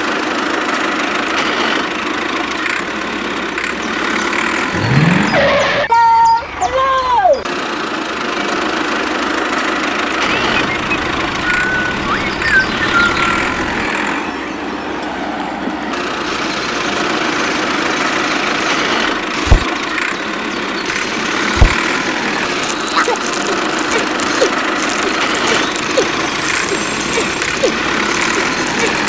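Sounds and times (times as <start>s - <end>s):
toy tractor motor running: 0.0s - 5.2s, 7.4s - 14.4s, 15.9s - 29.0s
sharp thumps: 19.4s - 19.8s, 21.5s - 22.1s.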